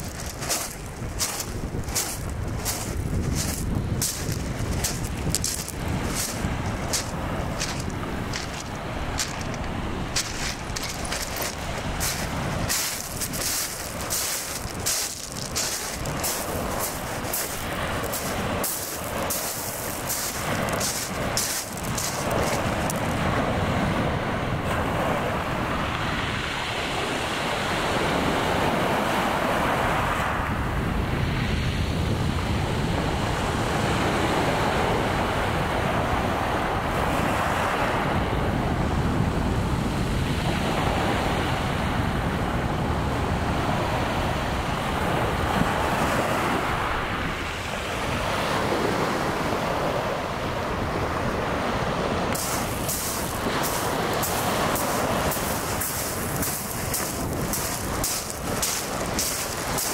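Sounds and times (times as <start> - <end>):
wind buffeting microphone: 0.0 - 28.9, 38.1 - 59.9
waves washing up shingle: 0.0 - 30.4, 45.0 - 59.9.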